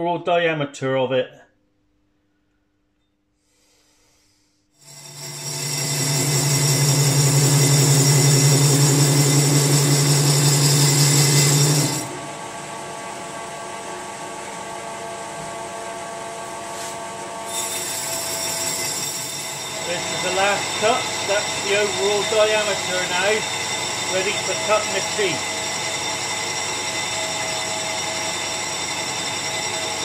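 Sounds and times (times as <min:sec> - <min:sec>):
metal lathe running: 0:04.8 - 0:12.6, 0:17.5 - 0:30.0.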